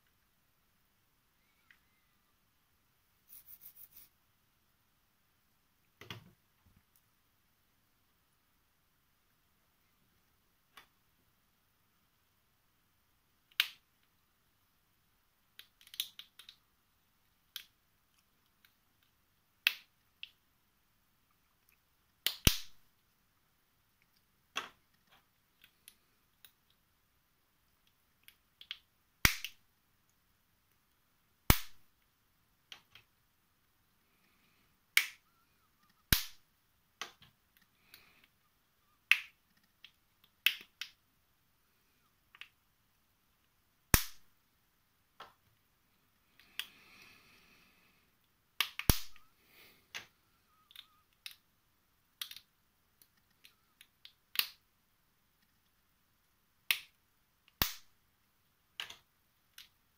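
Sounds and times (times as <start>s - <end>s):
plastic puzzle pieces clicking: 15.5s - 16.6s, 17.5s - 20.4s, 27.8s - 29.6s, 39.1s - 41.0s, 48.6s - 49.3s, 49.9s - 51.4s, 52.2s - 54.6s, 58.8s - 59.8s.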